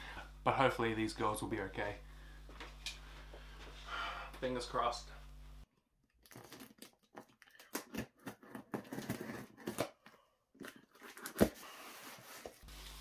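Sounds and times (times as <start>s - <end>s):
packing tape tearing off cardboard: 6.2s - 10.0s, 10.6s - 13.0s.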